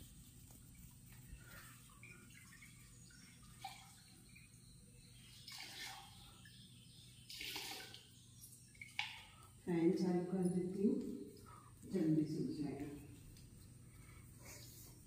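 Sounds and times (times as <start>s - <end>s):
mop sloshing in bucket of water: 5.4s - 6.2s.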